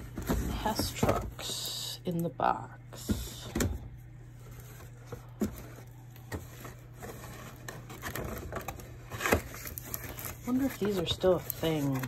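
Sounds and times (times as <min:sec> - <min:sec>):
cardboard boxes knocking and scraping: 0:00.0 - 0:01.4
steady low hum: 0:00.0 - 0:12.0
cardboard rustling and clicking: 0:04.6 - 0:12.0.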